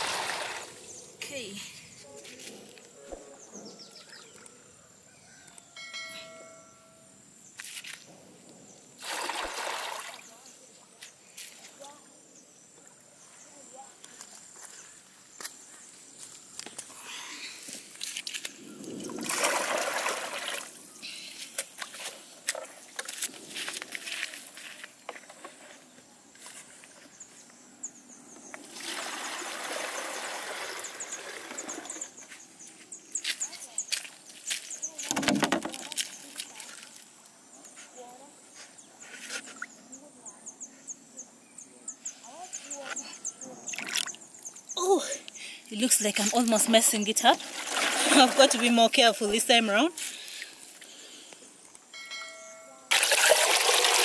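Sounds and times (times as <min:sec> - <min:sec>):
water pouring into basin: 0:00.0 - 0:00.8, 0:09.0 - 0:10.4, 0:18.9 - 0:20.8, 0:28.6 - 0:32.2, 0:47.4 - 0:48.7, 0:52.9 - 0:54.0
short chime: 0:05.8 - 0:07.1, 0:51.9 - 0:52.9
water sloshing and dipping: 0:09.0 - 0:10.6, 0:18.0 - 0:20.8, 0:28.6 - 0:32.2, 0:43.7 - 0:44.5, 0:46.1 - 0:49.2.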